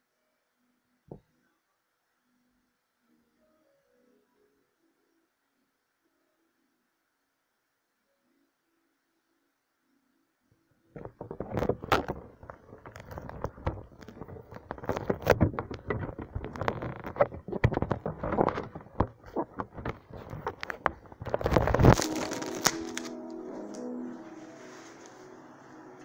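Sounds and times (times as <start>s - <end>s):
phone handling noise: 11.0s - 24.2s.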